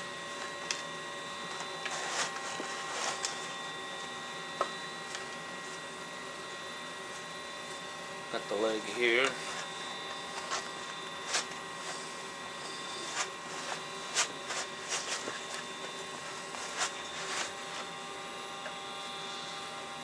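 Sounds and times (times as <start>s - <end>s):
electrical hum: 0.0s - 20.0s
hide scraping over blade: 1.8s - 3.5s, 9.3s - 18.0s.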